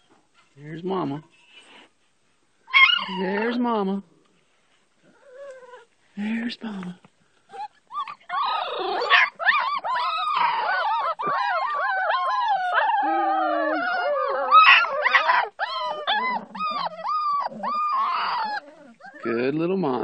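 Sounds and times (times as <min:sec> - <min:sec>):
puppies whining and yelping: 0:02.7 - 0:03.5, 0:05.1 - 0:05.9, 0:07.5 - 0:19.5.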